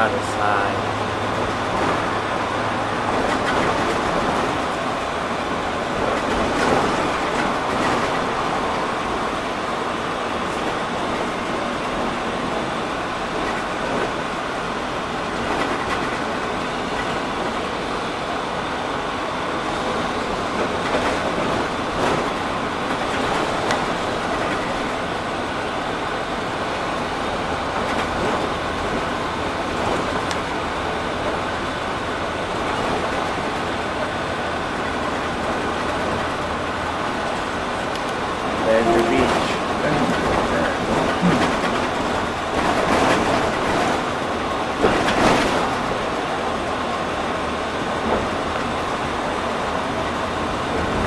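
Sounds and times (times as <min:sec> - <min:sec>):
bus engine and road drone: 0:00.0 - 0:51.0
knocks and rattles: 0:38.8 - 0:44.0.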